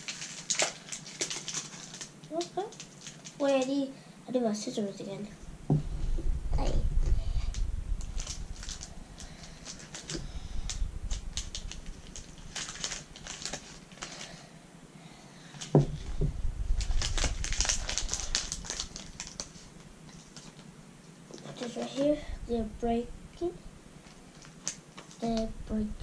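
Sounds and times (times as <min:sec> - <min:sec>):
plastic wrapper crackling: 0:00.0 - 0:03.8, 0:07.4 - 0:14.4, 0:15.6 - 0:20.7, 0:22.8 - 0:25.9
short low thud: 0:05.6 - 0:08.1, 0:15.8 - 0:16.7.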